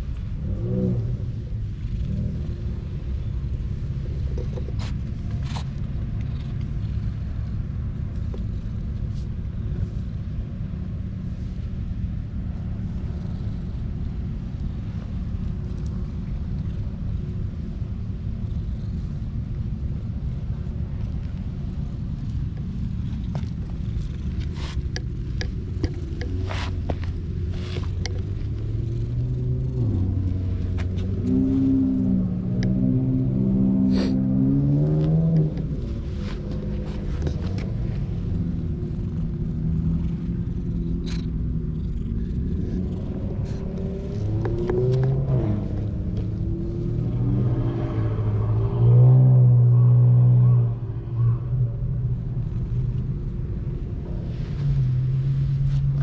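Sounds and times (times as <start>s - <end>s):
cat purring: 18.5s - 19.1s, 35.7s - 45.1s
hand rustling on fur: 26.3s - 28.4s.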